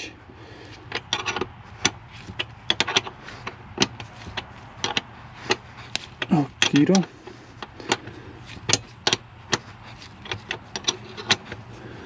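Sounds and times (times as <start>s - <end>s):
wrench clicking on metal bolt: 0.9s - 6.9s.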